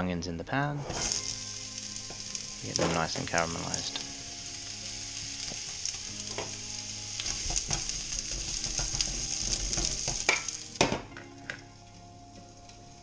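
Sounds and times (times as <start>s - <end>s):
spatula scraping a pan: 0.8s - 3.4s, 7.2s - 10.6s
onions sizzling in oil: 0.8s - 13.0s.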